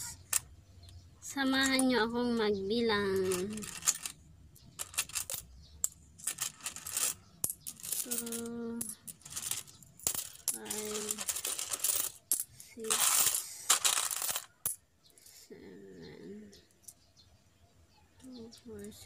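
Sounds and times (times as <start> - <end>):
coins clinking and jingling: 3.2 - 14.8.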